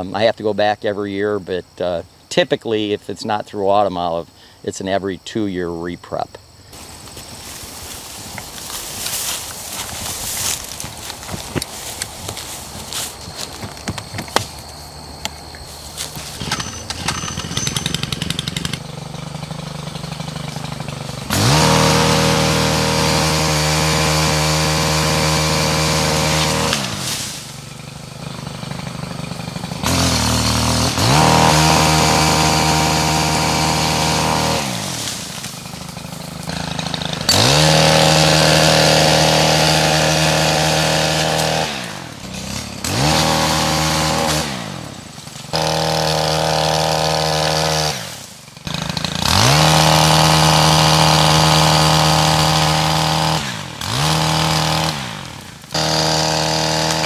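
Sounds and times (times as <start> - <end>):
pole saw engine revving: 7.5 - 15.0, 15.7 - 57.0.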